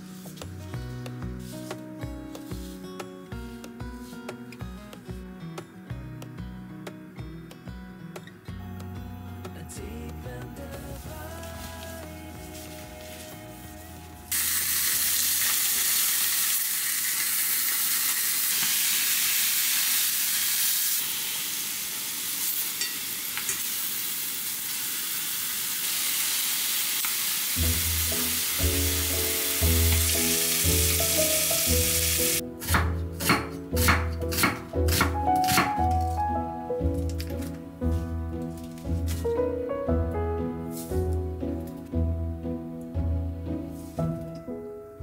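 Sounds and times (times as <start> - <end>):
background music: 0.0 - 15.6, 27.6 - 45.0
meat sizzling in oil: 14.3 - 32.4
knife chopping on wooden board: 32.6 - 35.9.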